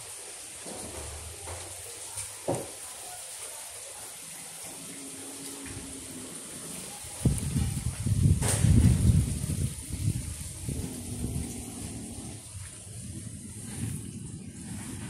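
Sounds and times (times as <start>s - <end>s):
running water: 0.0s - 15.0s
knock: 2.5s - 2.7s.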